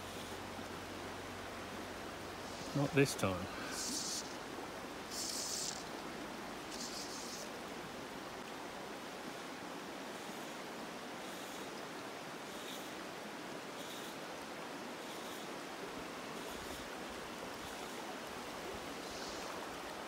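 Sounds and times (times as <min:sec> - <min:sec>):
river flowing over stones: 0:00.0 - 0:20.0
high hissing swishes: 0:02.4 - 0:04.4, 0:05.0 - 0:06.0, 0:06.7 - 0:07.5.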